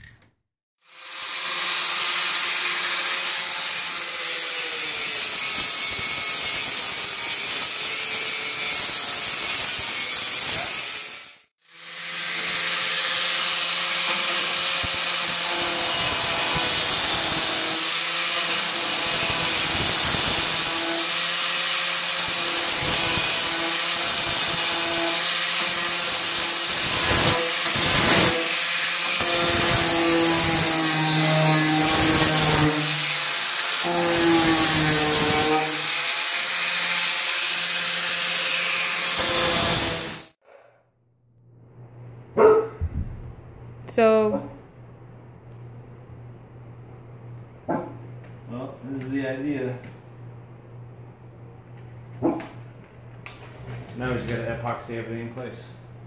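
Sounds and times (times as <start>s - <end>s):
angle grinder grinding metal: 0.8s - 40.4s.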